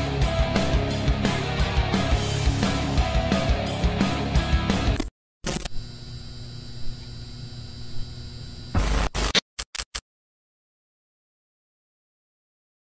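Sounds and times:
rock music: 0:00.0 - 0:05.0
loud glitch bursts: 0:05.0 - 0:05.7, 0:08.7 - 0:10.0
electrical hum with static: 0:05.4 - 0:09.4
quick stuttering clicks: 0:08.8 - 0:10.0.

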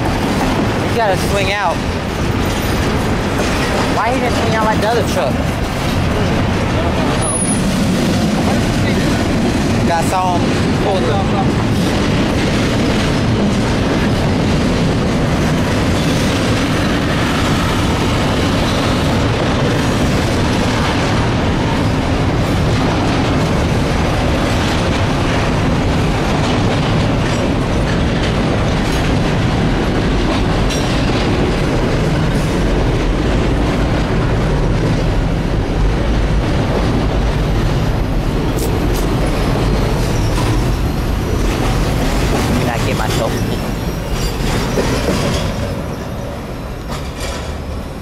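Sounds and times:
train wheels rumbling on rail: 0:00.0 - 0:48.0
sharp clicks of rail wheels: 0:46.7 - 0:47.9.

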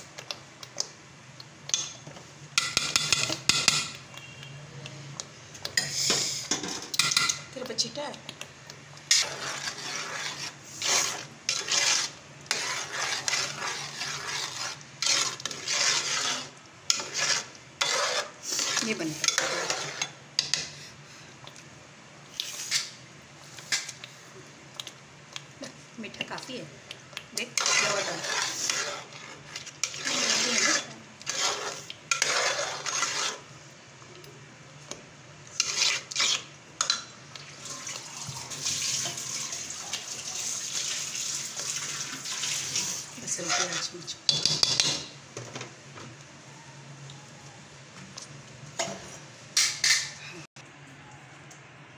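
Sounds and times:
ladle scraping a metal pot: 0:09.1 - 0:20.7, 0:27.4 - 0:33.5, 0:35.5 - 0:37.0, 0:40.4 - 0:45.2.

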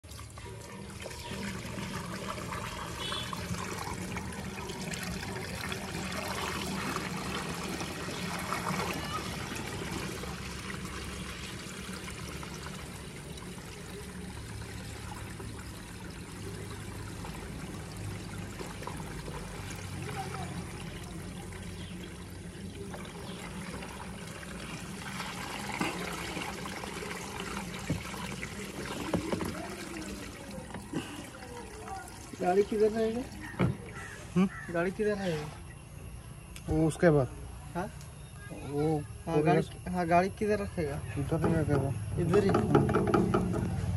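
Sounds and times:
fuel trickling through funnel: 0:00.0 - 0:43.9
light knocks: 0:41.4 - 0:43.8.

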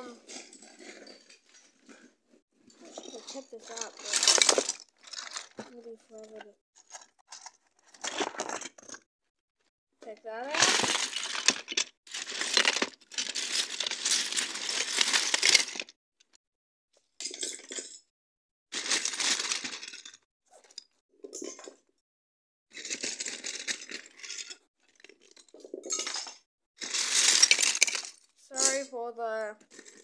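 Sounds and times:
plastic bricks clattering: 0:02.9 - 0:09.0, 0:10.5 - 0:15.9, 0:18.8 - 0:20.2, 0:22.8 - 0:28.8.

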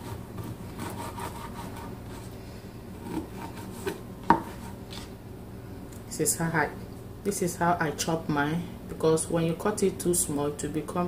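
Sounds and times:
knife slicing raw liver: 0:03.0 - 0:05.1.

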